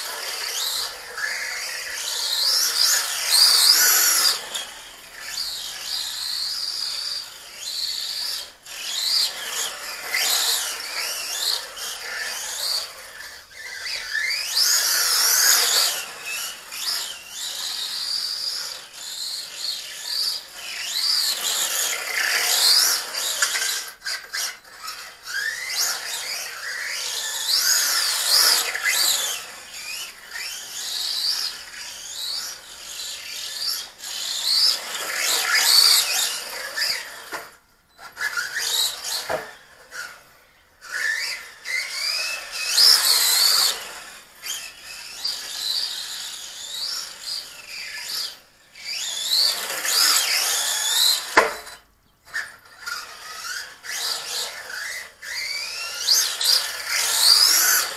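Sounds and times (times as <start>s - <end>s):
electric motor whining: 52.4s - 57.9s.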